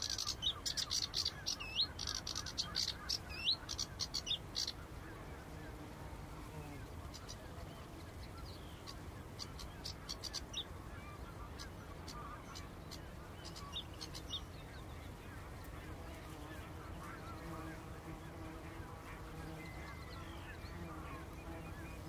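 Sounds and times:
sharp high bird calls: 0.0s - 4.9s, 8.2s - 14.5s
flock of waterbirds calling: 0.0s - 5.8s, 6.7s - 22.0s.

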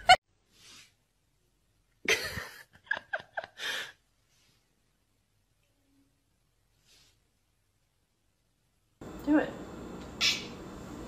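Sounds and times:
person laughing: 0.0s - 0.2s, 2.1s - 3.9s.

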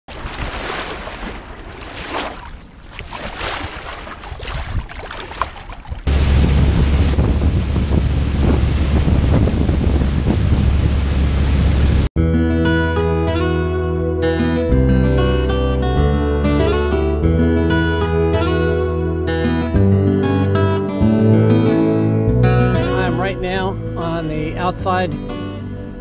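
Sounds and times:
water rushing along hull: 0.1s - 12.1s
wind buffeting microphone: 3.4s - 12.1s.

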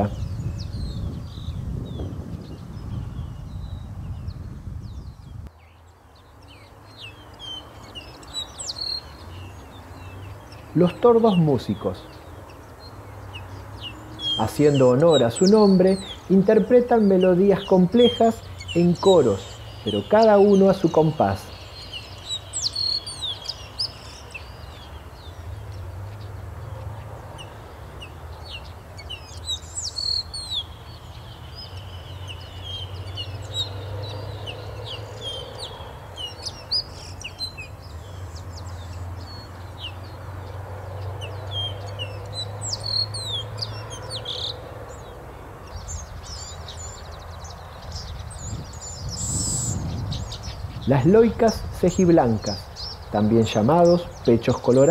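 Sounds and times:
birds chirping and whistling: 0.0s - 26.4s, 27.3s - 54.9s.

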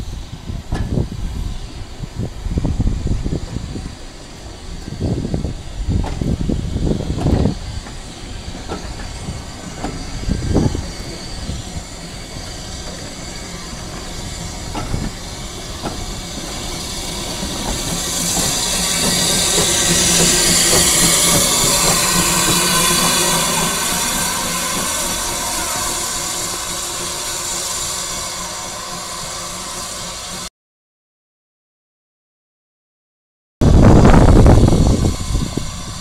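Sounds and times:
steam engine hiss: 0.0s - 30.5s, 33.6s - 36.0s
coach wheels knocking on rail joints: 5.9s - 11.2s, 13.8s - 25.4s.

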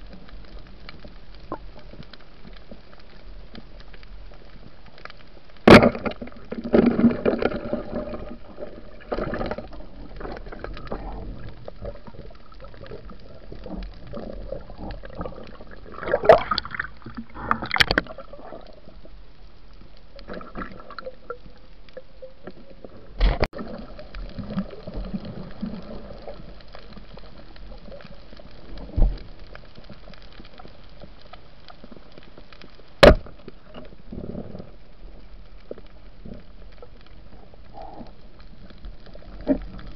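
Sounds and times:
muffled underwater wash: 0.0s - 39.9s
water churning: 5.7s - 19.2s, 20.2s - 26.6s.

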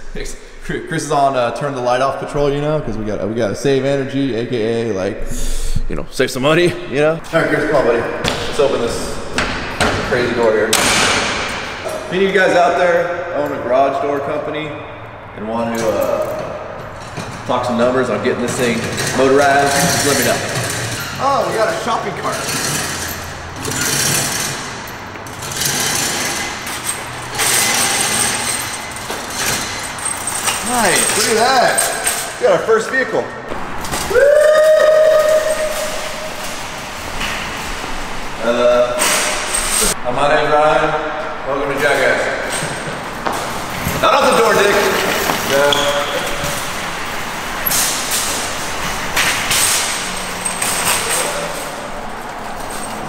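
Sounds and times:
door hand chain rattling: 18.3s - 32.4s, 42.0s - 53.0s.

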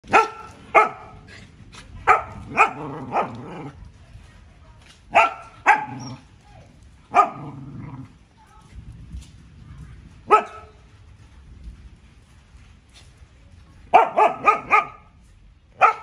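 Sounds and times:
dog barking: 0.1s - 1.2s, 2.0s - 3.4s, 5.1s - 6.1s, 7.1s - 7.6s, 10.3s - 10.8s, 13.9s - 15.0s, 15.8s - 16.0s.

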